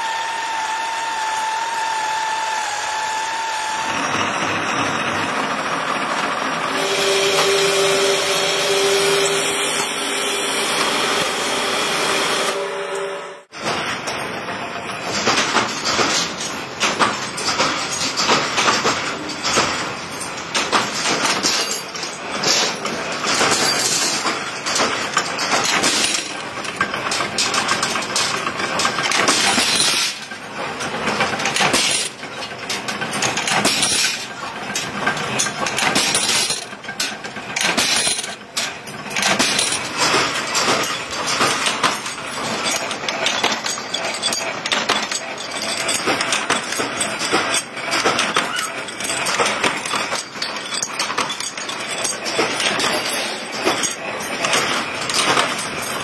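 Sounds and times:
power press punching steel: 0:06.7 - 0:13.4.

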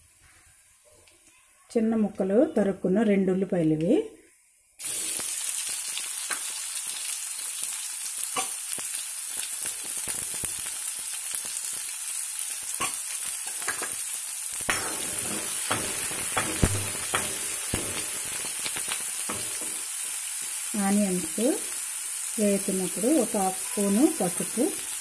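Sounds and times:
onions sizzling in hot oil: 0:04.4 - 0:25.0
spatula scraping a pan: 0:14.7 - 0:20.2.

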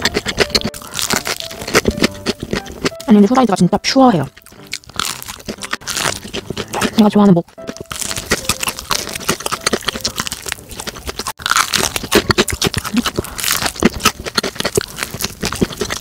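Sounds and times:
fried chicken crunching: 0:00.0 - 0:03.6, 0:04.3 - 0:16.0.

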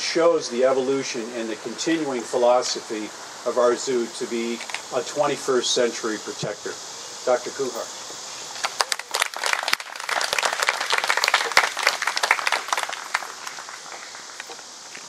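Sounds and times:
audience applauding: 0:08.6 - 0:14.6.

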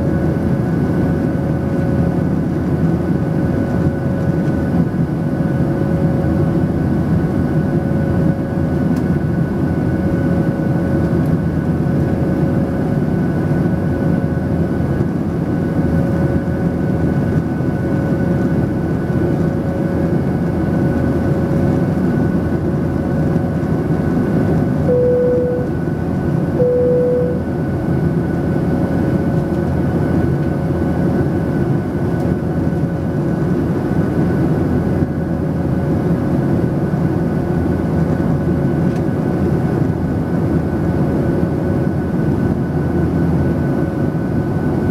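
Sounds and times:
aircraft cabin engine drone: 0:00.0 - 0:44.9
faint steady tones: 0:24.9 - 0:25.7, 0:26.6 - 0:27.4
short beeps: 0:24.9 - 0:25.8, 0:26.6 - 0:27.5.

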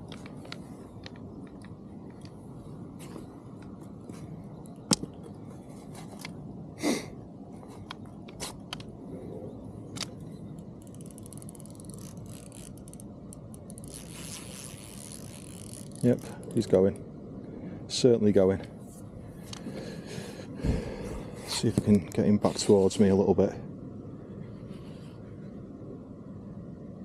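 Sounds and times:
steady low rumble: 0:00.0 - 0:27.0
fishing tackle clicks and knocks: 0:04.7 - 0:05.4
fishing reel rapid ticking: 0:10.8 - 0:13.0, 0:13.6 - 0:16.6.

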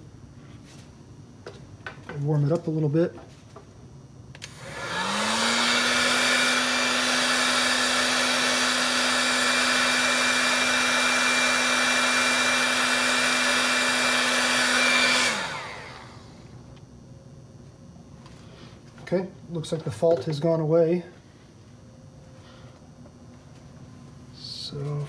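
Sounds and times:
heat gun fan humming: 0:00.0 - 0:25.0.

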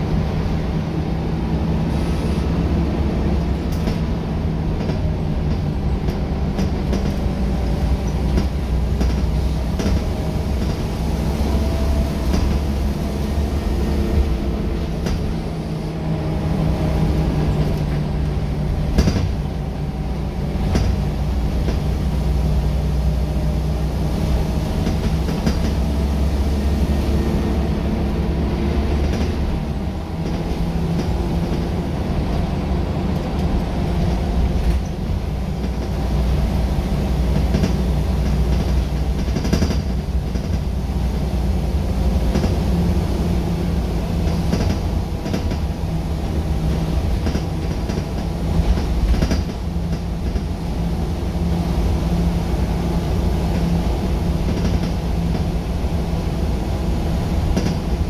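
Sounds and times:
bus body rattling: 0:00.0 - 0:58.0
bus diesel engine running: 0:00.0 - 0:58.0
road and tyre noise: 0:00.0 - 0:58.0.

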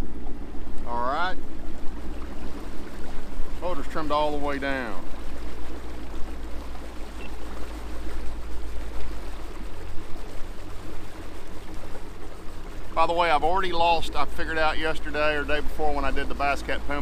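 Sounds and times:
outboard motor idling: 0:00.0 - 0:17.0
water sloshing against boat hull: 0:00.0 - 0:17.0.

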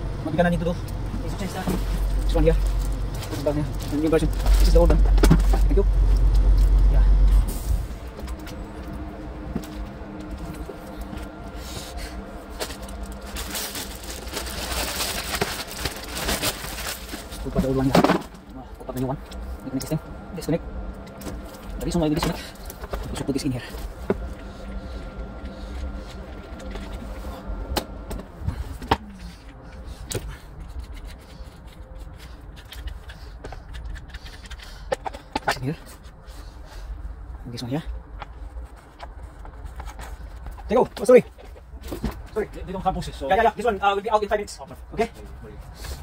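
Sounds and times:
faint low hum: 0:00.0 - 0:46.0
vehicle rumble: 0:00.0 - 0:46.0
plastic bag rustling: 0:11.6 - 0:18.4.

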